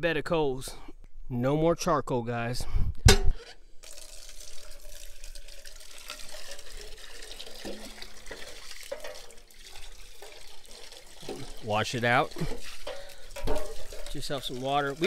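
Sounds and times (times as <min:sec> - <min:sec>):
hose water splashing into metal pan: 0:03.8 - 0:15.0.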